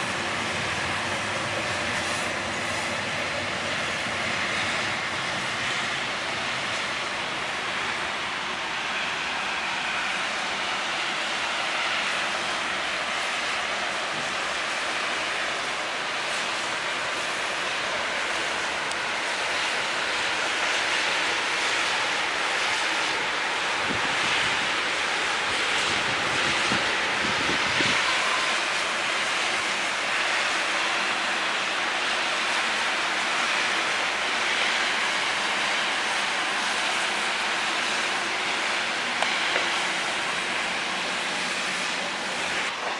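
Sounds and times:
road traffic on slushy street: 0.0s - 42.9s.

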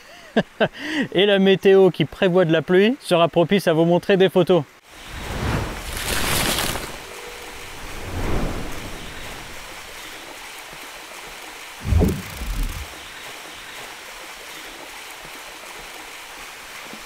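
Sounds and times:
rushing whoosh: 7.6s - 9.9s, 11.8s - 13.0s
deep booms: 11.8s - 13.0s.

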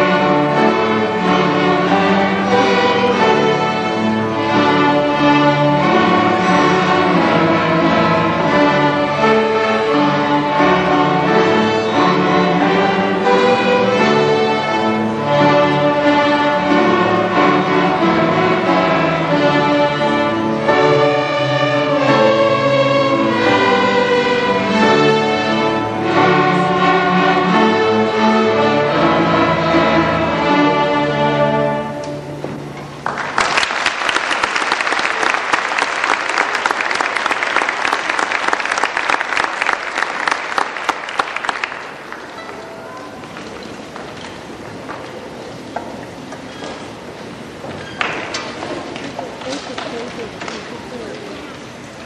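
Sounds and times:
string orchestra playing: 0.0s - 33.7s, 34.5s - 52.0s
audience applause: 32.9s - 44.9s.

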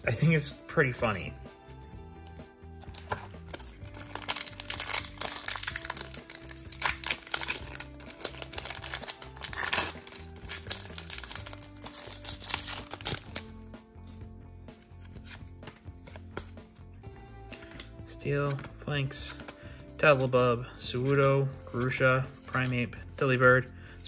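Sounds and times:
background music: 0.0s - 24.0s
foil wrapper crinkling: 2.9s - 13.4s.

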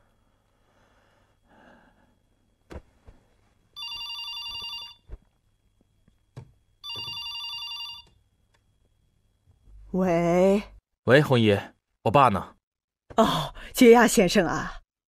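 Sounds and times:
telephone ringing: 3.8s - 5.1s, 6.8s - 8.2s.

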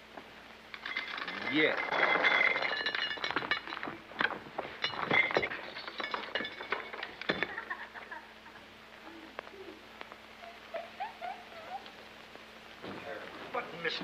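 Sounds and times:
clinks and clattering knocks: 0.7s - 7.8s.

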